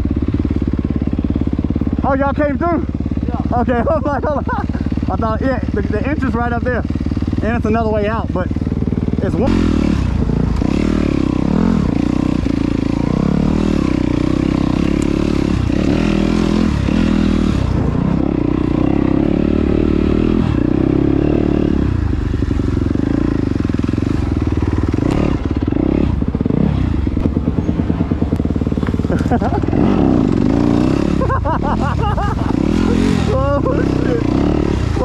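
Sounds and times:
dirt bike engine revving: 0.0 - 35.0.

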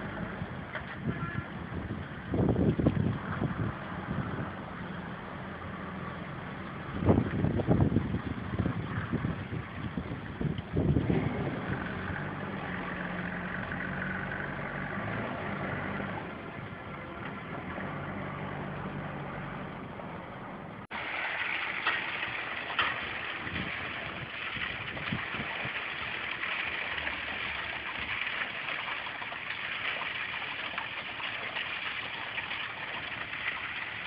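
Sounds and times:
wind on microphone: 0.0 - 5.0, 6.7 - 13.8, 23.1 - 26.2
gravel sliding off truck bed: 20.9 - 28.6.

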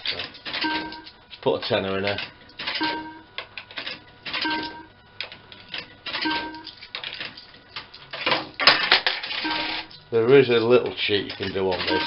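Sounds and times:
short electronic beeps: 0.6 - 1.1, 2.8 - 3.2, 4.4 - 4.9, 6.2 - 6.7, 9.4 - 10.0.

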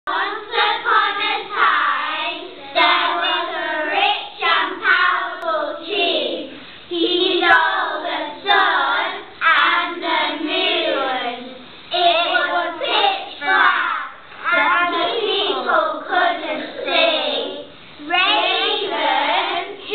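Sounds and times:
children singing in unison: 0.1 - 19.9.

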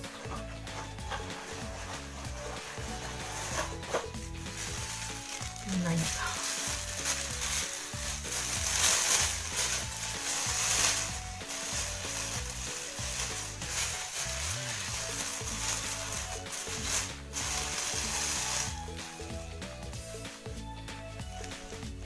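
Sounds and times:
background music: 0.0 - 22.0
plastic bag crinkling: 1.1 - 19.5.

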